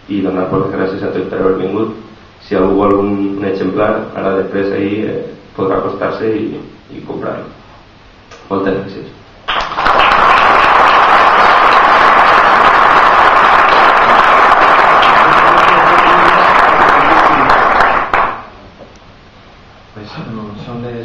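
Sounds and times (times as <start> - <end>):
audience applauding: 9.5 - 18.5.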